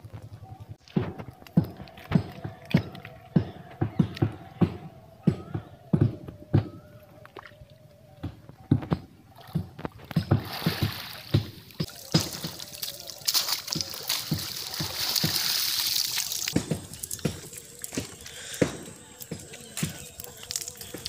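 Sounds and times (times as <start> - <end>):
water sloshing and splashing: 0.8 - 4.6, 6.3 - 21.0
hiss of splashing water: 10.3 - 21.0.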